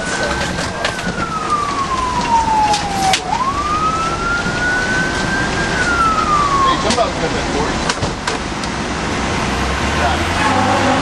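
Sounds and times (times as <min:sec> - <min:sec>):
fire engine siren wailing: 0:00.0 - 0:08.0
road noise: 0:00.0 - 0:11.0
truck engine: 0:00.0 - 0:11.0.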